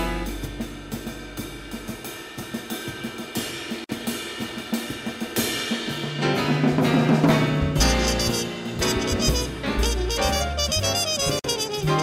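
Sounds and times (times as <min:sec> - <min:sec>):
hi-hat and cymbal: 0:00.0 - 0:06.4
snare drum strokes: 0:02.8 - 0:12.0.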